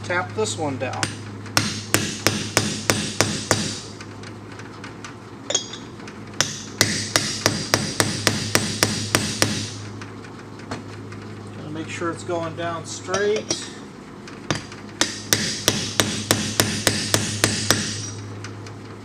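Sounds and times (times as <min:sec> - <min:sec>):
hammer striking metal: 0:01.0 - 0:03.9, 0:05.5 - 0:09.8, 0:13.1 - 0:13.8, 0:14.5 - 0:18.2.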